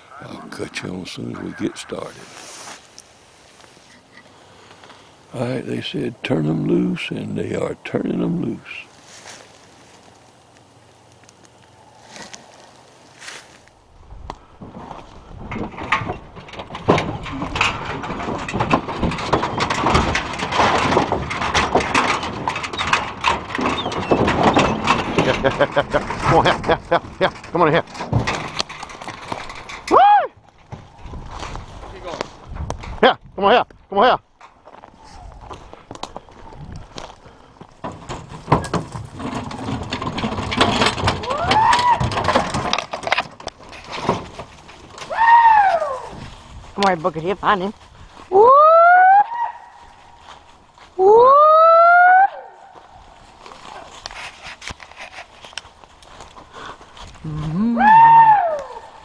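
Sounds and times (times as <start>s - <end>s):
footsteps crackling through dry leaves: 2.0s - 5.2s, 8.8s - 14.1s, 44.5s - 51.1s, 52.5s - 57.6s
man whooping: 29.9s - 30.4s, 45.1s - 46.1s, 48.3s - 49.6s, 51.0s - 52.5s, 57.3s - 58.8s
hounds barking and yelping: 48.4s - 50.0s, 51.2s - 52.8s.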